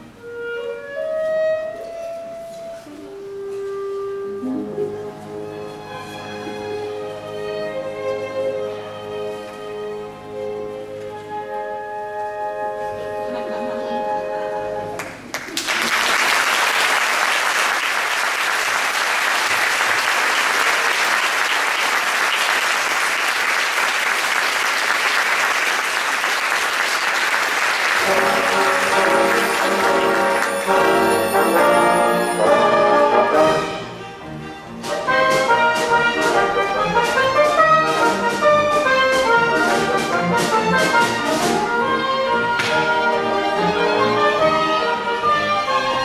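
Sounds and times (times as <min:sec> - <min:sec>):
orchestra playing: 0:00.0 - 0:15.3, 0:16.2 - 0:46.0
brass playing: 0:00.1 - 0:05.6, 0:26.8 - 0:46.0
audience applauding: 0:15.0 - 0:32.3.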